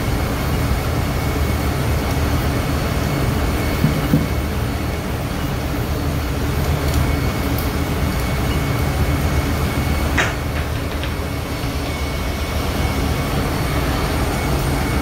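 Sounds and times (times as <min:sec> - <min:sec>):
low machinery rumble: 0:00.0 - 0:15.0
torch flame burning: 0:00.0 - 0:15.0.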